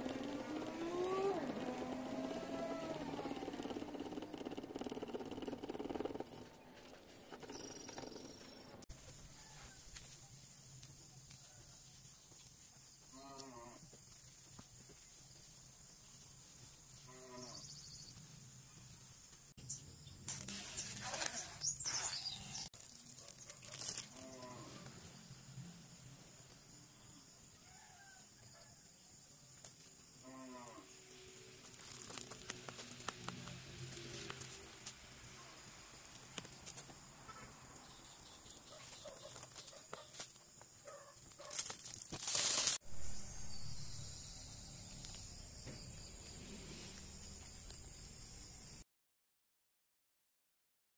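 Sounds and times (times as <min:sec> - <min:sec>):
plastic scraping and rustling: 0:20.3 - 0:24.2, 0:41.4 - 0:42.8
film being peeled: 0:22.8 - 0:24.2, 0:41.4 - 0:42.8.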